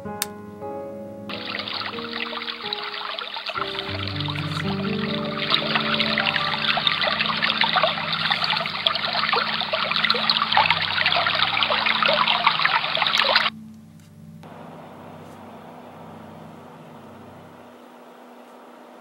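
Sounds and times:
running water from speaker: 1.3 - 13.5.

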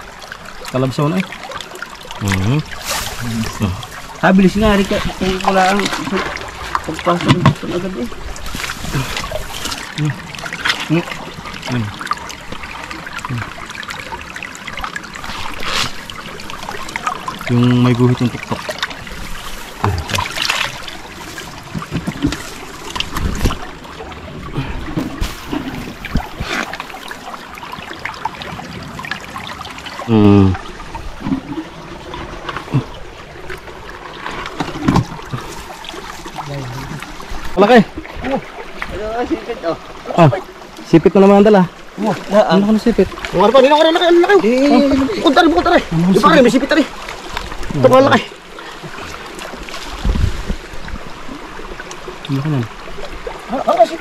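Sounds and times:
river water trickling: 0.0 - 54.0.

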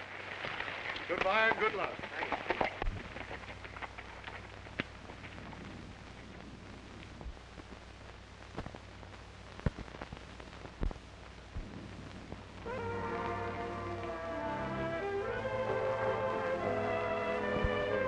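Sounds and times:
film soundtrack hiss and hum: 0.0 - 18.0
sharp clicks and pops: 0.4 - 12.6.

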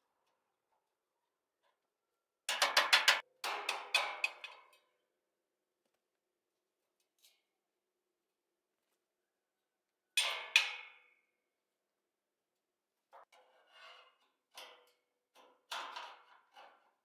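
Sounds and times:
light metal knocks and scrapes: 13.2 - 17.0.

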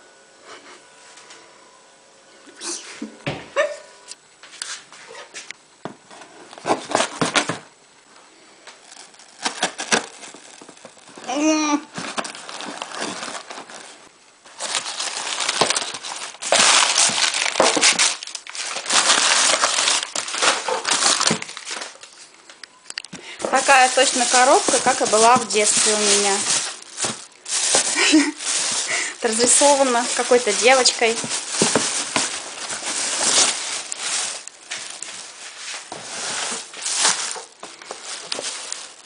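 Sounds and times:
plastic bag crinkling: 8.6 - 39.0
crumpled newspaper rustling: 8.7 - 22.3, 23.4 - 39.0
cardboard box clicks and rustles: 8.9 - 11.2, 11.9 - 13.9, 29.5 - 35.2.

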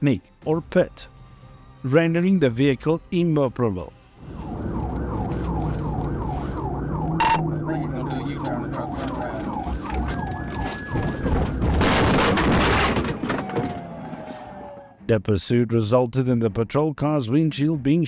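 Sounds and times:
car engine: 4.2 - 10.2
police siren yelping: 4.2 - 12.0, 13.1 - 15.0
cars crashing and skidding: 10.9 - 14.9.

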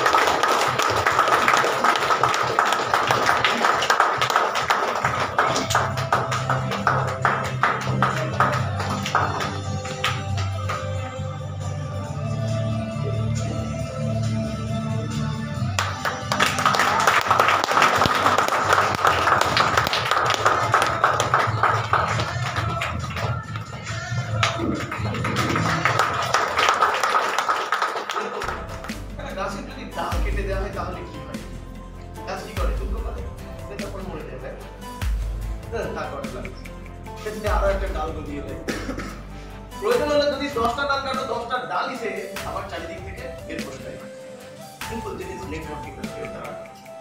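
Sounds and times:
audience clapping: 0.0 - 11.1, 15.8 - 29.0
background music: 0.0 - 47.0.

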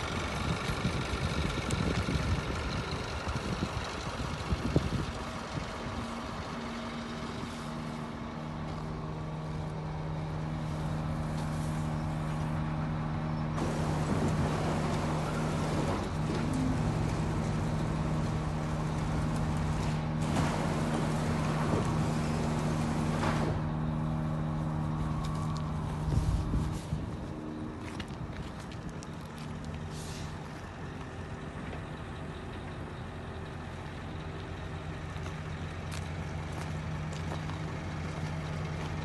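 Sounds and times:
diesel truck engine running: 0.0 - 39.0
footsteps on gravel: 25.0 - 31.1, 35.2 - 39.0.

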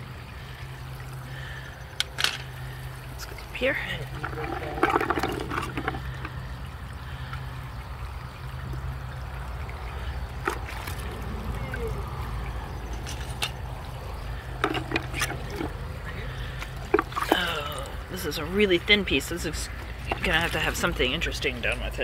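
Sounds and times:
liquid trickling in a bucket: 0.0 - 22.0.

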